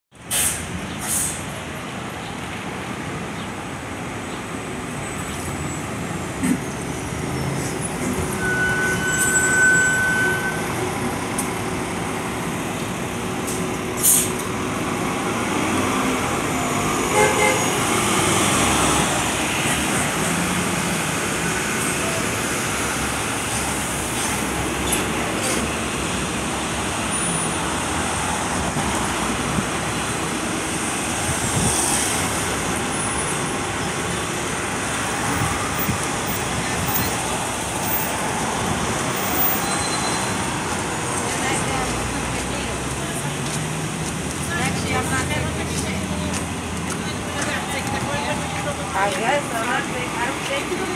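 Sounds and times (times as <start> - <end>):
street traffic noise: 0.1 - 50.9
bus driving past: 0.2 - 50.9
brief high tone: 8.3 - 10.7.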